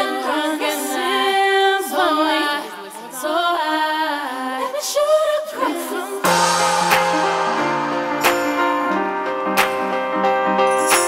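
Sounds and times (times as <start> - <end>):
song with singing voice: 0.0 - 10.0.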